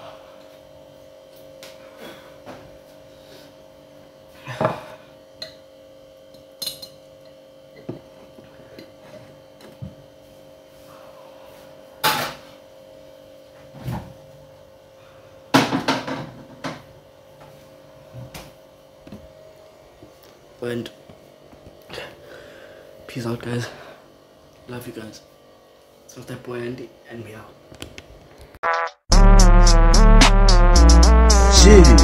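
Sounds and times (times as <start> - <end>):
kitchenware knocks and clatters: 15.6 - 16.8.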